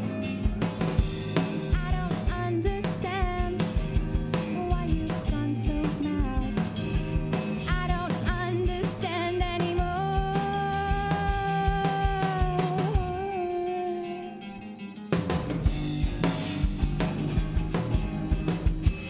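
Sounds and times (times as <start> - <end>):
drum kit: 0.0 - 13.4, 15.1 - 19.0
distorted electric guitars: 0.0 - 19.0
person singing: 1.7 - 3.6, 4.5 - 6.6, 7.6 - 14.8.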